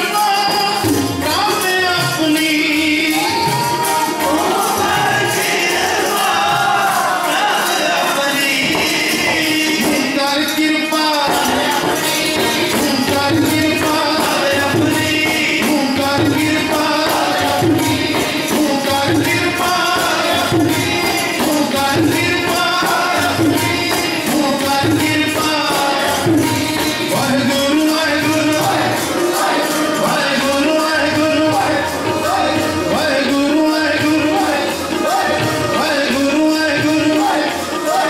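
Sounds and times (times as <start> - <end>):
harmonium: 0.0 - 38.0
men singing a hymn: 0.0 - 38.0
tabla beat: 0.0 - 38.0.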